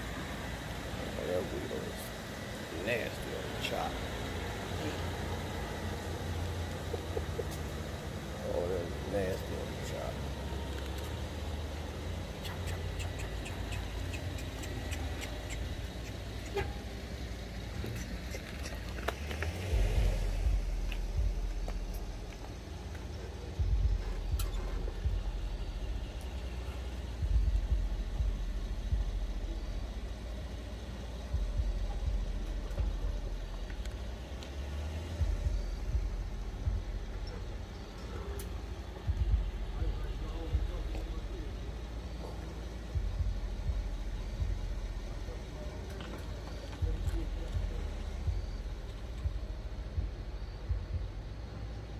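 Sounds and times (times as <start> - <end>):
car idling: 0.0 - 51.9
light ticks: 32.4 - 34.6.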